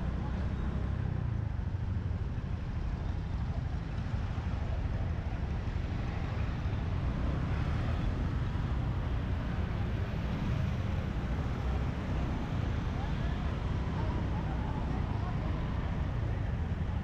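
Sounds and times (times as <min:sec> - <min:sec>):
motorbike engines running: 0:00.0 - 0:17.0
street traffic rumble: 0:00.0 - 0:17.0.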